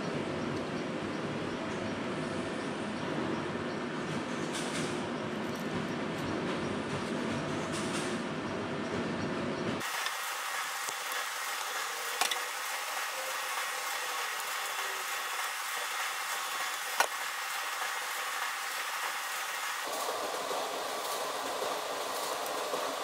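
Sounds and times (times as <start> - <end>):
steady hiss: 9.8 - 23.0.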